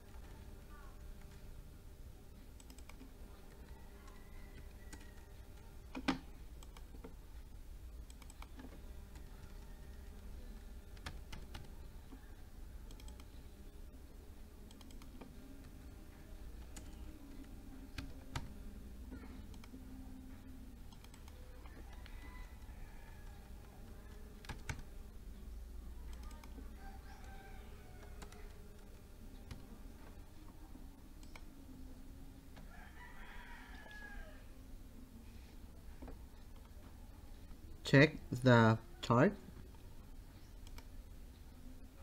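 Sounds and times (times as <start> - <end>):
low hum: 0.0 - 42.0
mouse clicks: 8.0 - 8.7, 12.9 - 13.4, 19.4 - 19.7, 26.1 - 28.6, 31.2 - 31.5, 40.4 - 40.9
keyboard keystrokes: 24.4 - 24.8.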